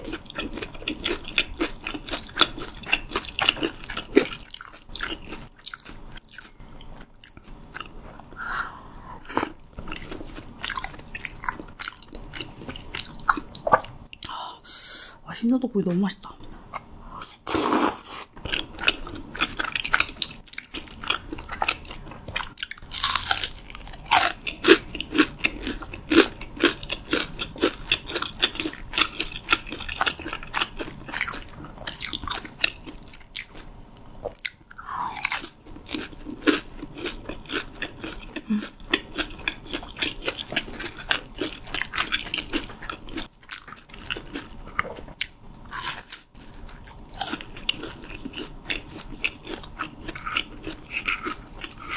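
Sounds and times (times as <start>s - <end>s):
chewing: 0.0s - 8.3s, 8.9s - 14.3s, 18.4s - 33.7s, 34.3s - 51.9s
crunching bites: 22.6s - 31.4s.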